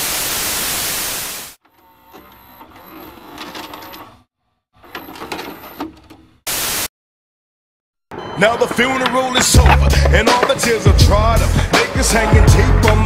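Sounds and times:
tv static hiss: 0.0 - 1.6, 6.5 - 6.9
mechanical clicking and whirring: 1.6 - 6.2.

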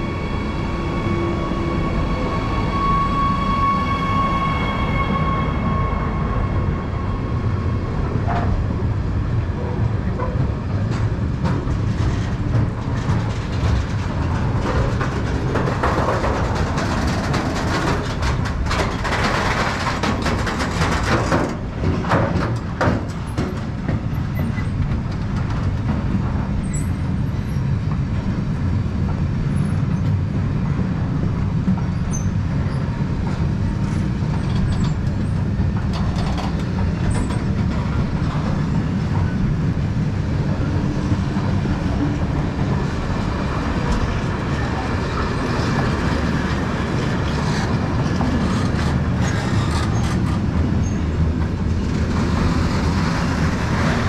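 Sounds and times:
train wagons rumbling: 0.0 - 54.0
wheels clicking on track: 9.6 - 27.3, 31.2 - 54.0.

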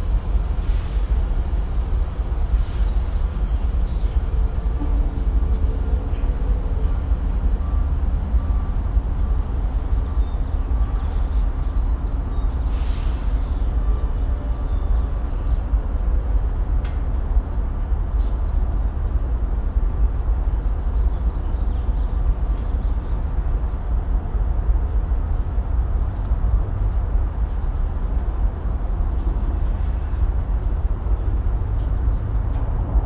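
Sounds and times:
faint steady tones: 0.0 - 27.1
train low rumble: 0.0 - 33.0
short hiss: 12.7 - 13.3
faint clicks: 24.9 - 28.3.

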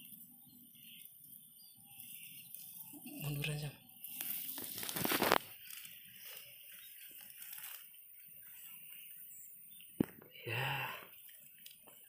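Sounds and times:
dry grass rustling: 0.0 - 12.0.

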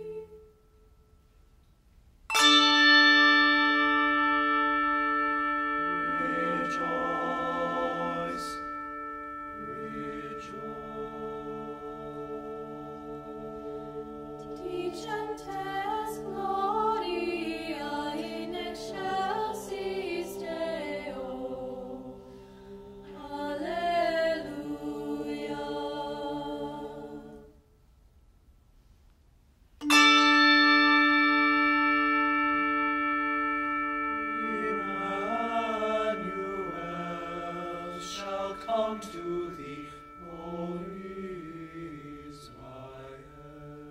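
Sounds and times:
youth choir singing: 0.0 - 0.3, 5.9 - 8.7, 9.6 - 27.5, 34.4 - 43.9
held handbell tones: 2.3 - 23.2, 29.8 - 43.9
handbells ringing a loud chord: 2.3 - 25.0, 29.8 - 43.9.

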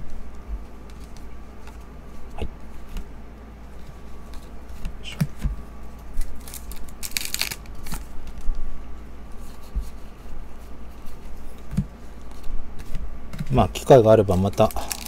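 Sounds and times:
cards rustling: 6.2 - 8.4, 12.1 - 15.0.

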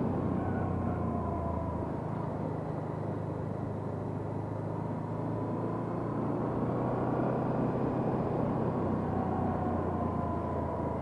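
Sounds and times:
road and wind noise: 0.0 - 11.0.

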